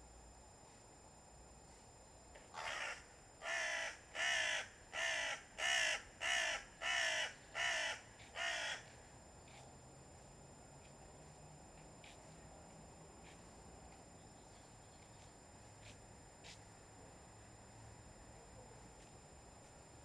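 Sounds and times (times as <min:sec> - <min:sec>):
crow cawing harshly: 0:02.6 - 0:08.9.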